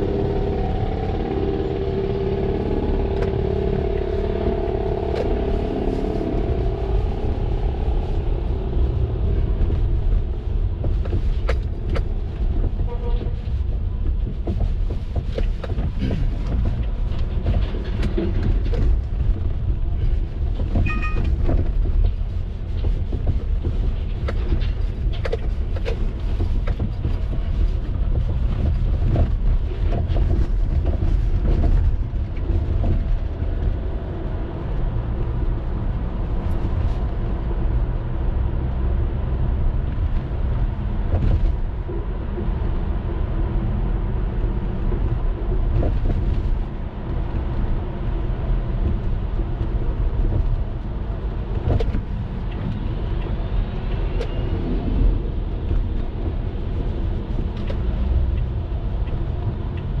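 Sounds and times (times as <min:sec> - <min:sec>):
car road rumble: 0:00.0 - 1:00.0
short high beep: 0:20.9 - 0:21.3.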